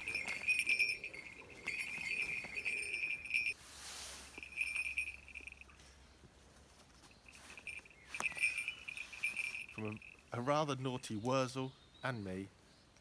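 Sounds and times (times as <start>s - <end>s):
rustling noise: 0.0s - 10.2s.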